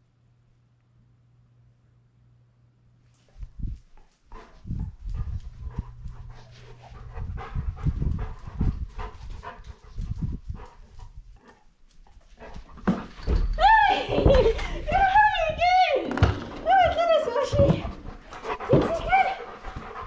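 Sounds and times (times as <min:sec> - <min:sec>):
dog panting: 0:03.7 - 0:13.4, 0:16.8 - 0:20.0.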